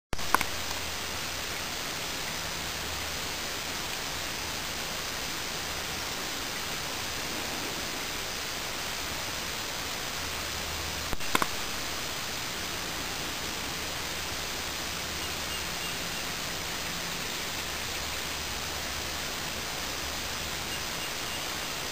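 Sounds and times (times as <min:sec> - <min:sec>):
steady background hiss: 0:00.2 - 0:21.9
brief clicks: 0:11.1 - 0:11.5.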